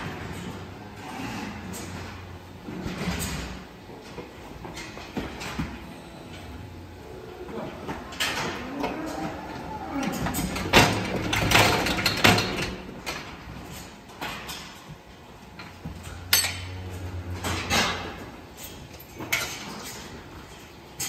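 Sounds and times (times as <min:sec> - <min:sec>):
machinery humming: 0:00.0 - 0:14.0.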